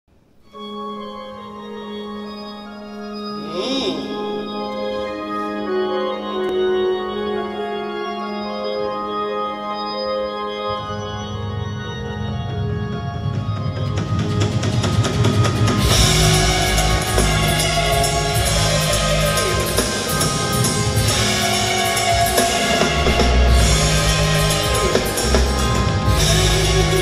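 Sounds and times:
sustained organ chords: 0.2 - 27.0
bass line: 15.7 - 27.0.

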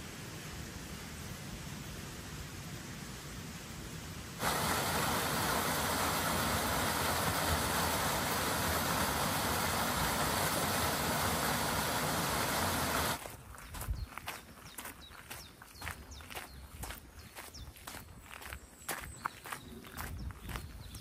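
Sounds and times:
loud rushing hiss: 0.0 - 13.3.

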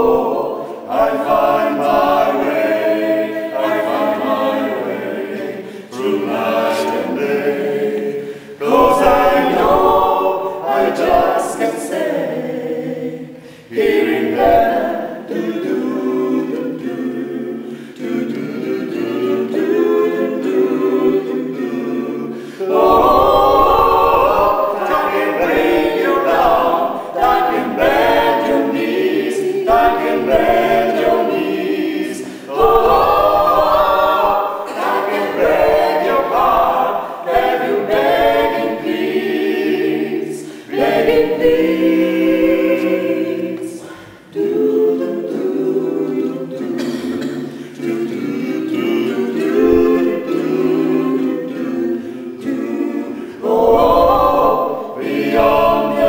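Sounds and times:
choir singing a cappella: 0.0 - 56.0.

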